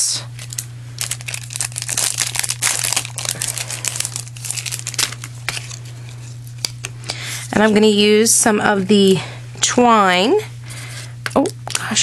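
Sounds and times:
low electrical hum: 0.0 - 12.0
paper rustling and crinkling: 0.4 - 6.8.

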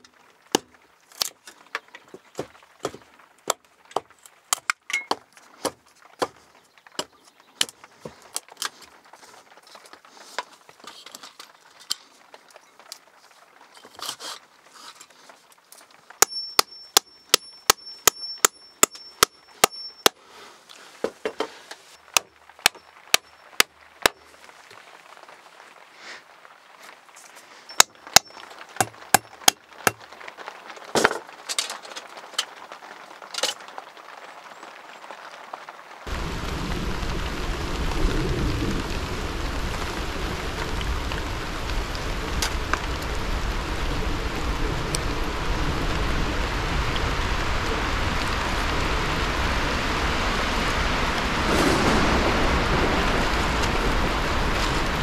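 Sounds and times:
metal tool striking wooden post: 2.8 - 5.2, 16.2 - 20.2, 27.7 - 30.0.

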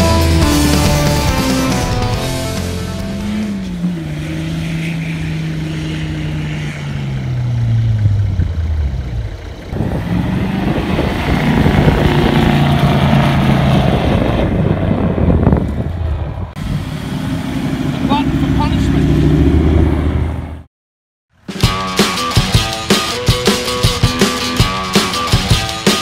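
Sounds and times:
vehicle engines working in sand: 2.5 - 20.7.

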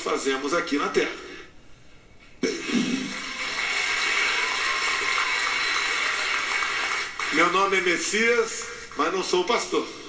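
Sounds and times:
audience applause: 2.8 - 8.7.

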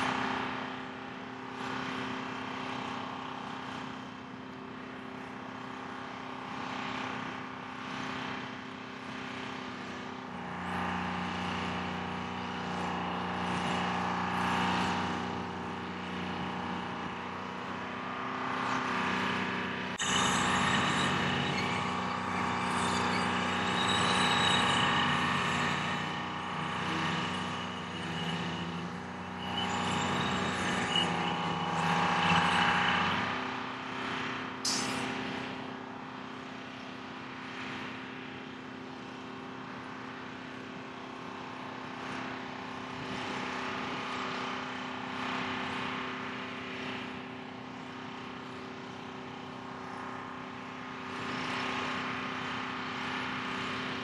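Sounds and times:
diesel engine running: 0.0 - 44.2
sharp click: 34.7 - 35.1.

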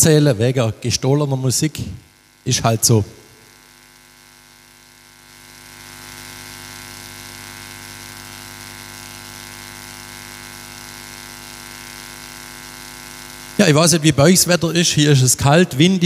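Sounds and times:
steady electronic hum: 0.0 - 16.0.

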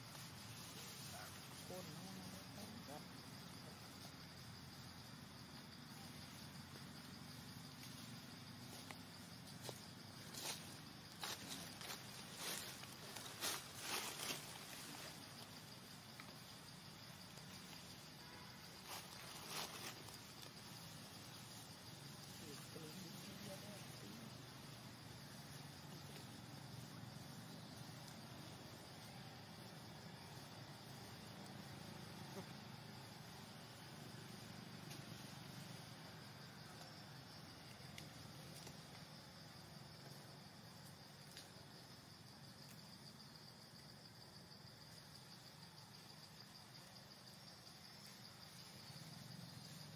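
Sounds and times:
high insect drone: 0.0 - 49.9
faint ticks: 40.8 - 41.5.

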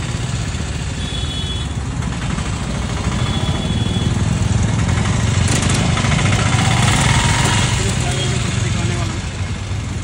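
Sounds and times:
motorcycle and car engines idling: 0.0 - 10.0
engine fast clatter: 1.8 - 9.2.

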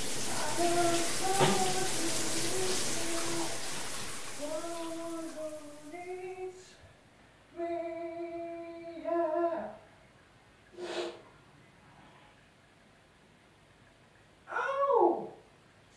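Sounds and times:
running water: 0.0 - 6.8
person humming a slow tune: 0.3 - 3.6.

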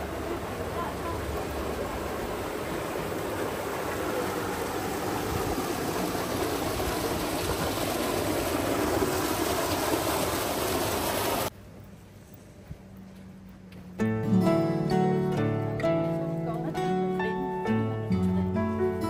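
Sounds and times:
sea surf washing onto beach: 0.0 - 11.5.

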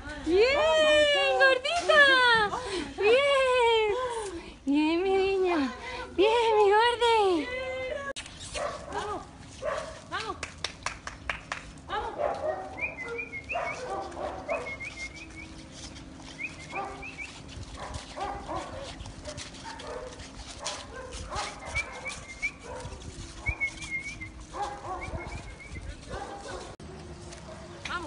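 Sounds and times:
dog yelping and whining: 12.5 - 26.7.

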